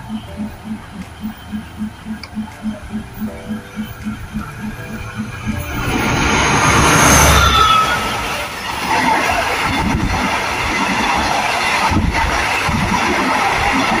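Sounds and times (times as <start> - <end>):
locomotive engine rumbling: 0.0 - 14.0
train wheels rolling: 0.0 - 14.0
wheels clacking over rail joints: 0.0 - 14.0
brief high squeal: 6.6 - 8.5.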